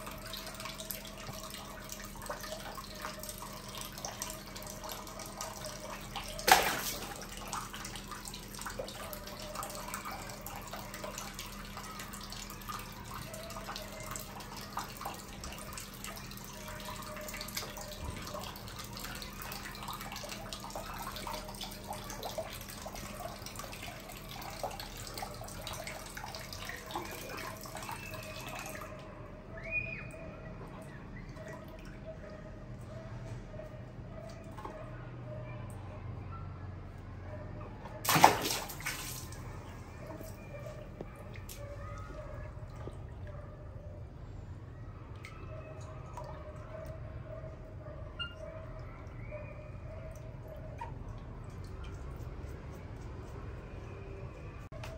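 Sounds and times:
water running and splashing: 0.0s - 12.0s, 38.0s - 40.8s
loud sharp splash: 6.4s - 7.2s, 38.0s - 39.4s.

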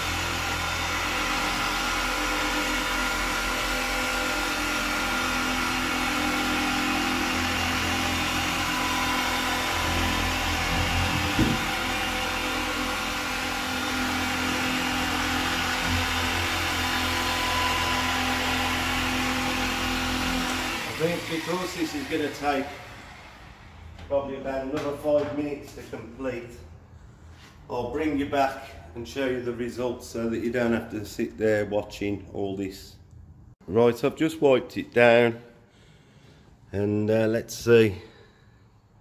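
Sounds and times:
orbital polisher motor whine: 0.0s - 24.1s.

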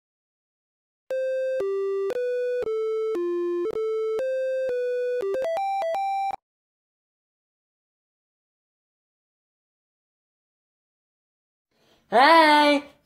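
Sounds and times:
synthesizer beep jingle: 1.1s - 6.4s.

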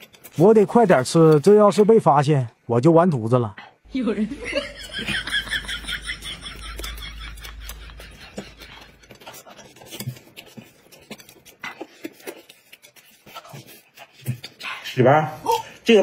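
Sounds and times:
scratching and clicking of handling: 0.0s - 1.9s, 6.5s - 14.9s.

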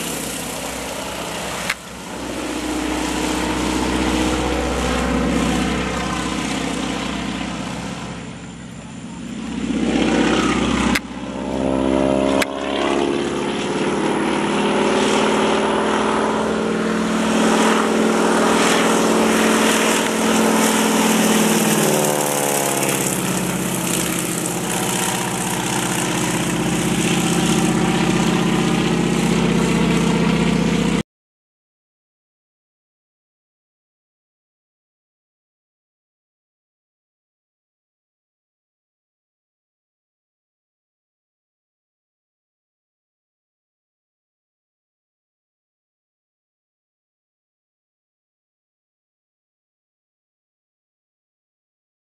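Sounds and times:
propeller plane droning overhead: 0.0s - 31.0s.

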